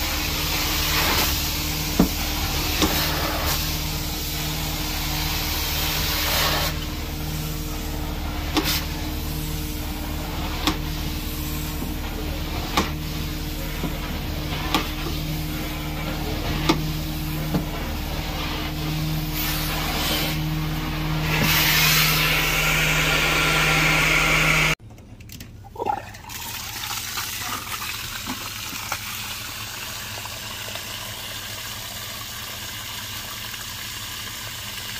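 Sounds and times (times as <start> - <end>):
carpet cleaning machine humming: 0.0 - 24.8.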